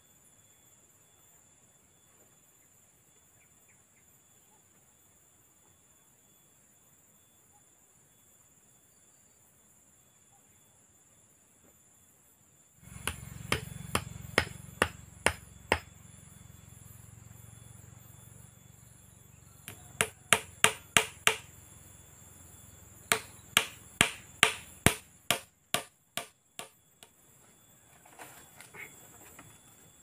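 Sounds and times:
insect trill: 0.0 - 30.0
hammer blows on wooden post: 12.9 - 15.9, 19.7 - 21.5, 23.1 - 26.8.

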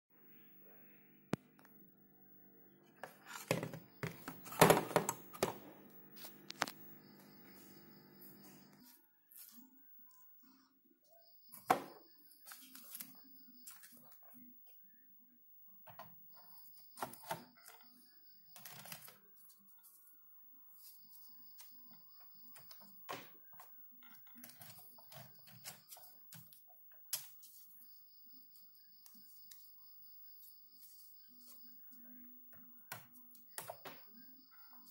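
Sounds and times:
faint steady hum: 0.1 - 22.9.

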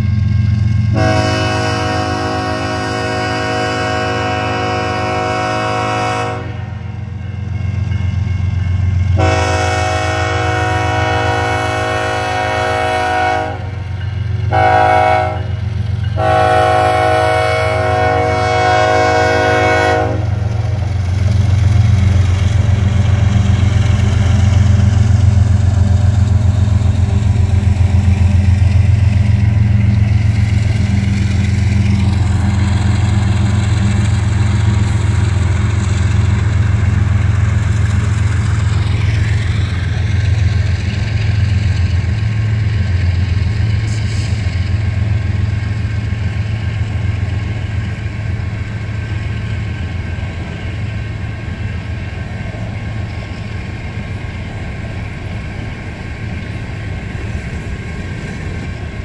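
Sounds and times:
locomotive air horn blasts: 0.9 - 6.8, 9.2 - 13.9, 14.5 - 15.6, 16.2 - 20.4.

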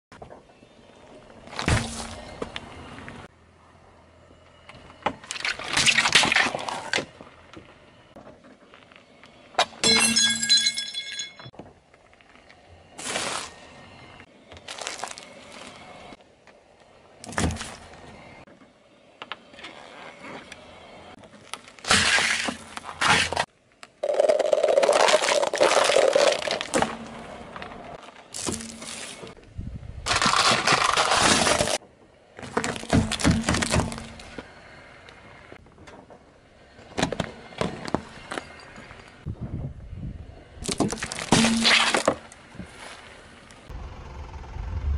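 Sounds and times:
car tyre crushing small objects: 1.5 - 2.6, 14.4 - 16.2, 21.2 - 29.4, 30.0 - 31.8, 32.4 - 36.0, 40.6 - 43.7.

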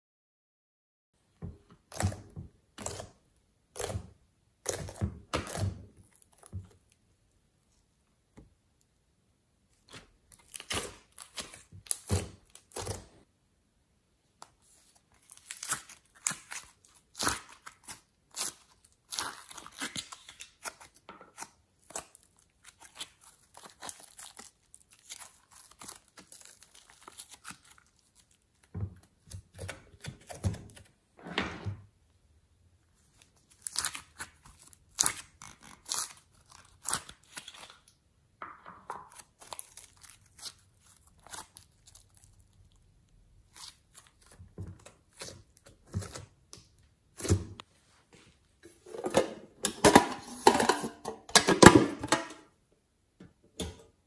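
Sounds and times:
slime tearing and crackling: 10.3 - 13.2, 15.1 - 30.8, 33.1 - 38.0, 39.1 - 46.6.

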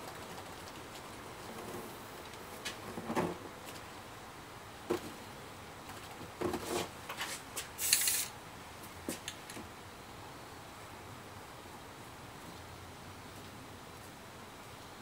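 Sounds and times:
short hiss: 7.8 - 8.3.

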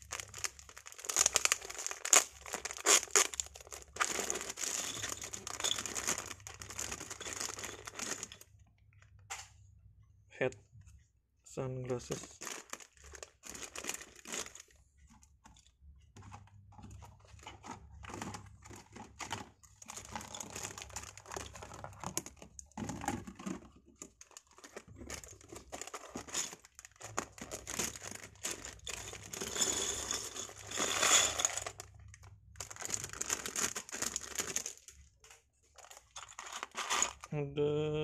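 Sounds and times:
plastic bags crinkling: 0.0 - 8.5, 11.9 - 15.2, 16.2 - 37.4.

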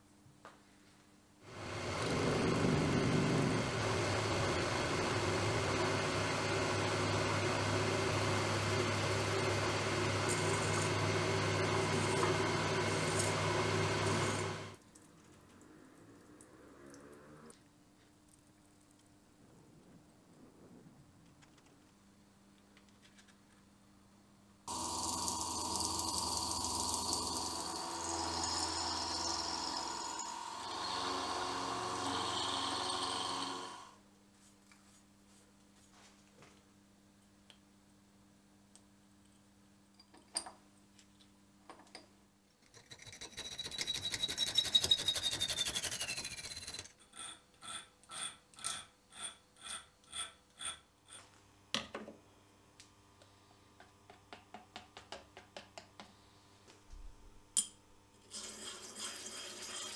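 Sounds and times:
end mill cutting metal: 1.5 - 14.8, 24.7 - 33.9
hand file rasping on metal: 42.8 - 51.2.

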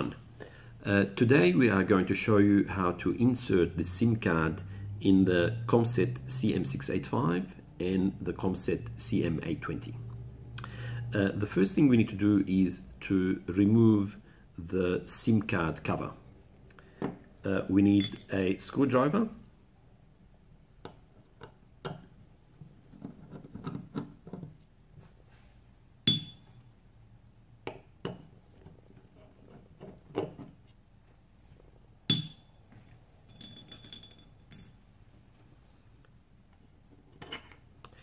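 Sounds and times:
ringing metallic clinks: 26.1 - 26.4, 33.3 - 34.8.

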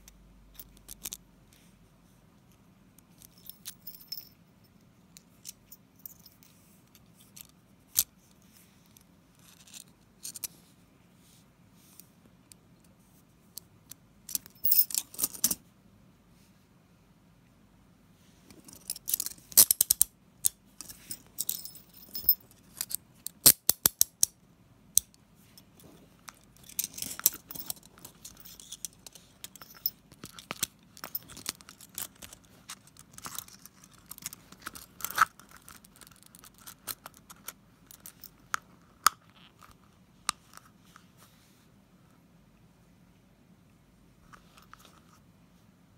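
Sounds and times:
handcuff case rubbing: 25.6 - 39.8.

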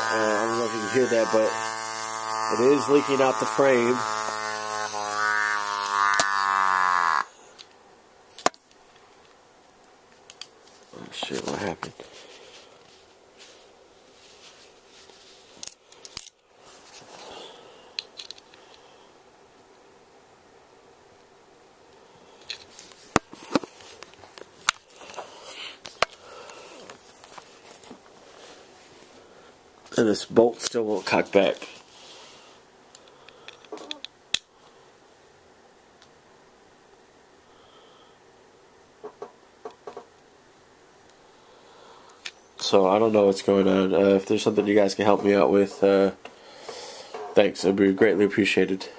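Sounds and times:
compressed air leaking buzz: 0.0 - 7.6
rustling and shuffling: 10.1 - 18.8, 22.4 - 32.5.

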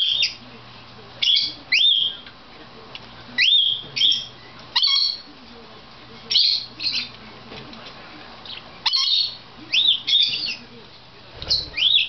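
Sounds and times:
budgerigars chirping: 0.0 - 0.4, 1.2 - 2.2, 3.4 - 5.3, 6.2 - 7.2, 8.5 - 10.7, 11.4 - 12.0.

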